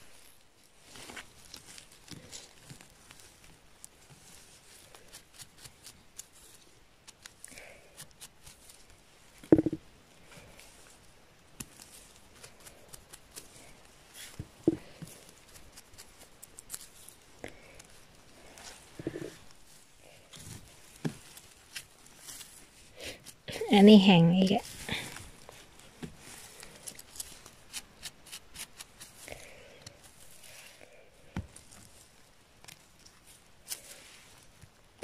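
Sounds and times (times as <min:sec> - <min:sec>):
gloved hands rustling in moss: 0:00.0 - 0:35.0
soft knocks: 0:09.5 - 0:09.8
knife scraping mushroom stem: 0:11.6 - 0:17.2, 0:26.8 - 0:29.3.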